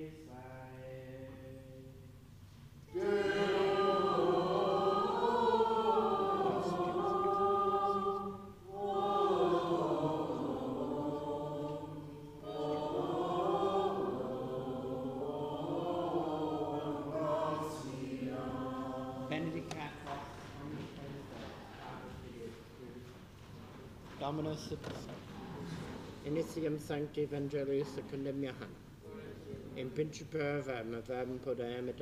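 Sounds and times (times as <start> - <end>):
choir singing plainchant: 2.9 - 21.4.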